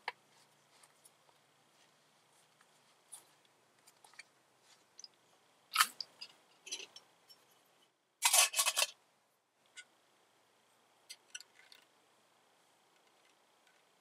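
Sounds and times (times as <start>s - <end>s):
metal lid clattering on cup: 8.2s - 9.0s.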